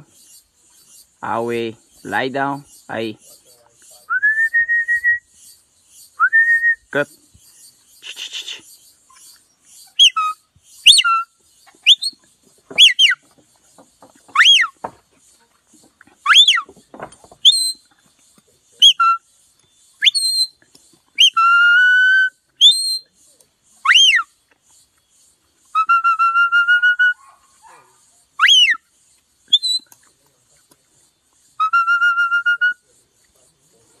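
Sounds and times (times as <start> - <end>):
whistled signals: 4.0 - 5.4, 6.2 - 7.0, 10.0 - 13.2, 14.3 - 14.8, 16.2 - 16.7, 17.4 - 17.9, 18.8 - 19.3, 20.0 - 20.6, 21.2 - 23.2, 23.8 - 24.3, 25.7 - 27.2, 28.4 - 28.9, 29.5 - 29.9, 31.6 - 32.9.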